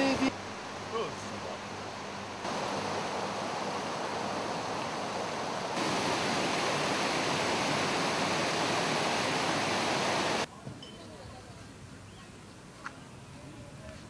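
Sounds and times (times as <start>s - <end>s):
water rushing over a weir: 0.0s - 10.5s.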